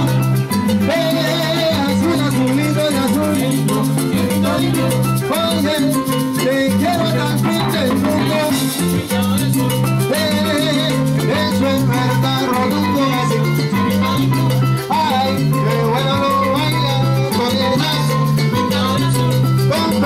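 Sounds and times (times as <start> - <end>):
live salsa band playing: 0.0 - 20.0.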